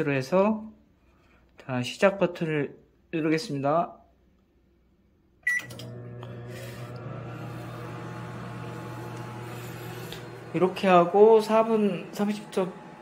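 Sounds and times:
microwave beep: 5.4s - 6.4s
microwave oven humming: 5.5s - 13.0s.

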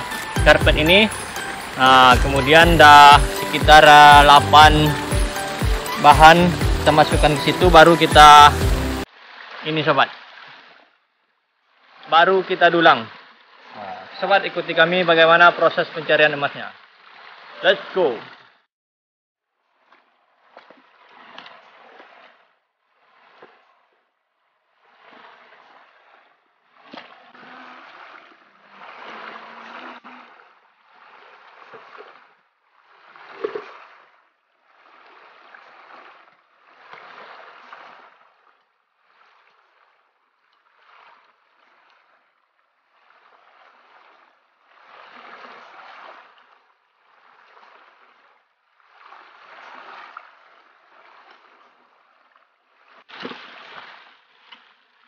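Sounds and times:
bucket knocking: 0.0s - 9.0s
water sloshing and splashing: 0.0s - 18.7s, 19.5s - 55.0s.

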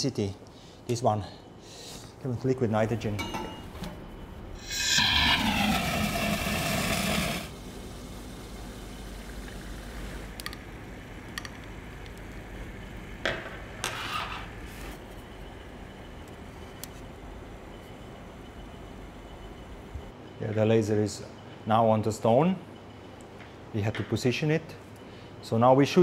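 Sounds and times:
liquid nitrogen hissing: 4.6s - 13.0s.

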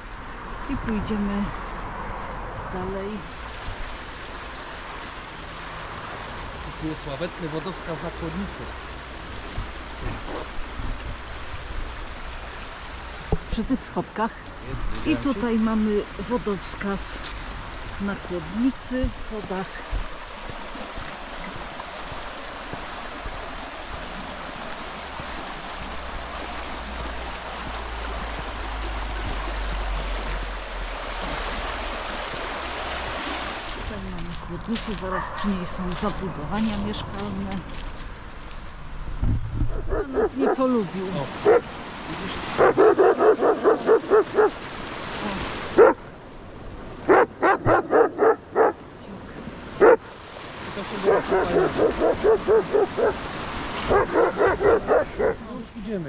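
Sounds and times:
river water rushing: 0.0s - 39.2s, 39.8s - 56.0s
dog barking: 35.1s - 35.6s, 39.7s - 40.7s, 41.4s - 41.7s, 42.5s - 44.6s, 45.8s - 46.0s, 47.1s - 48.8s, 49.8s - 50.0s, 51.0s - 53.2s, 53.8s - 55.4s.

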